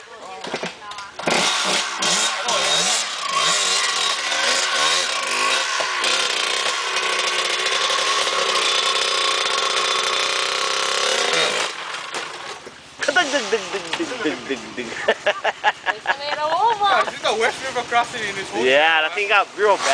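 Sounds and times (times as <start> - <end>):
dirt bike engine revving: 1.2 - 15.9, 16.8 - 19.9.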